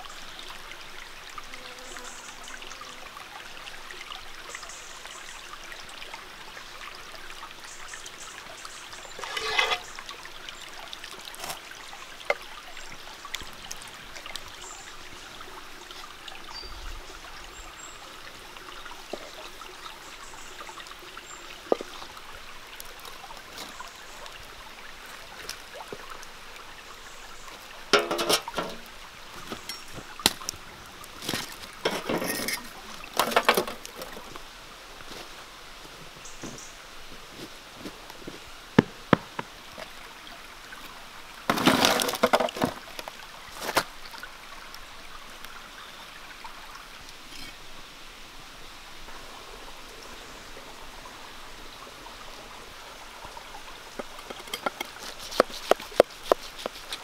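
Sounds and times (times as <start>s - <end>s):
stream trickling: 0.0s - 57.0s
clay pot clattering: 9.2s - 10.0s, 28.0s - 28.9s, 31.8s - 33.8s, 54.0s - 56.8s.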